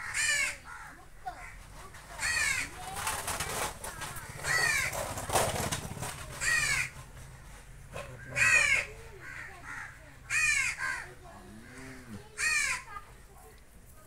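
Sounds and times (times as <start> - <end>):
crow cawing: 0.0 - 1.6, 2.2 - 2.8, 4.1 - 5.1, 6.4 - 7.0, 8.0 - 13.0.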